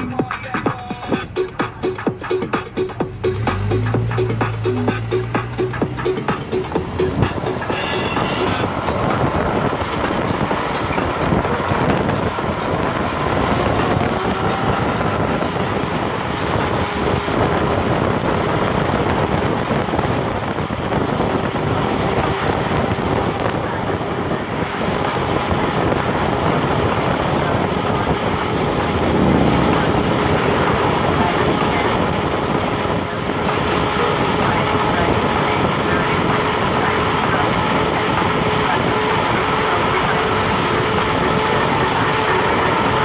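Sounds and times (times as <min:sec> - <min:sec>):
road noise: 0:00.0 - 0:43.0
wind rushing over microphone: 0:00.0 - 0:43.0.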